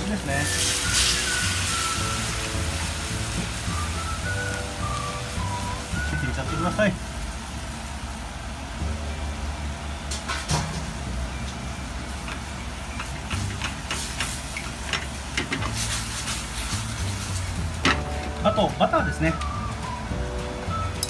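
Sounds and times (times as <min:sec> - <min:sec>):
liquid sizzling in a frying pan: 0:00.0 - 0:08.7, 0:10.6 - 0:18.3.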